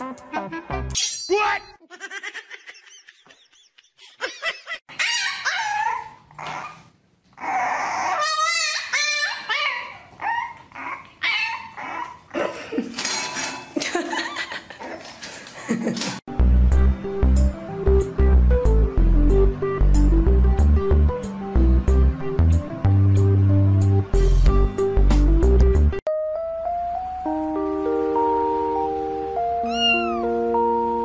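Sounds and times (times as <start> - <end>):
dog yipping whining and barking: 4.9 - 12.3, 29.6 - 30.3.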